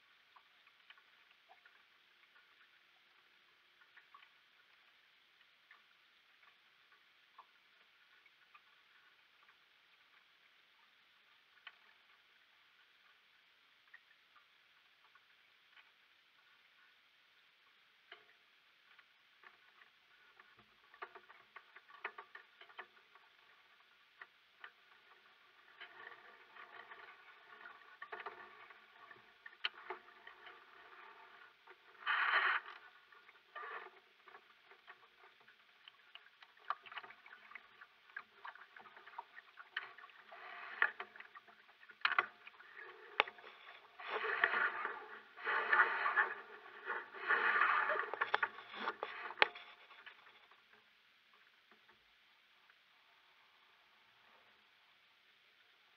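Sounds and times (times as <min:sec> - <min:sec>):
water splashing against hull: 0:00.0 - 0:51.9.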